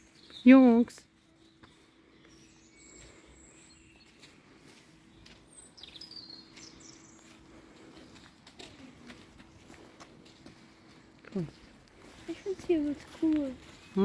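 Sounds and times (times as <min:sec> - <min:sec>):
songbird chirps and whistles: 0:00.0 - 0:07.5.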